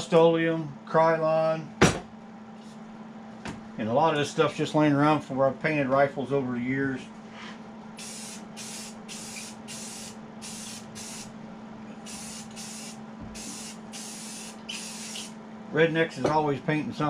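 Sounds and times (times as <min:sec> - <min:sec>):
spray paint can hissing bursts: 0:08.0 - 0:11.3, 0:12.1 - 0:15.4.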